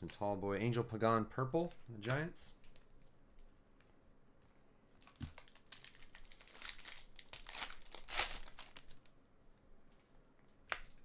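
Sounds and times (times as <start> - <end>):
foil wrapper tearing: 5.1 - 9.0.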